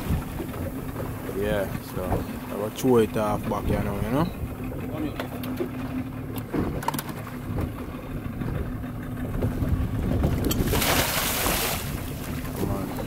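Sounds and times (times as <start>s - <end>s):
outboard motor idling: 0.0s - 13.0s
loud splash into water: 10.6s - 12.1s.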